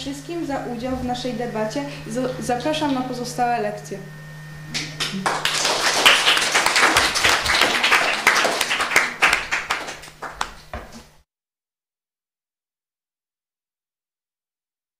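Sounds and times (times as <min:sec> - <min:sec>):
small group applauding: 0:04.7 - 0:11.1.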